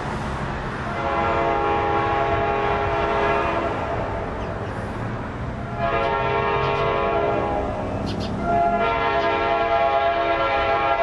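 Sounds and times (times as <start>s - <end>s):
low train rumble: 0.0s - 11.0s
locomotive air horn blasts: 0.9s - 4.0s, 5.7s - 7.8s, 8.4s - 11.0s.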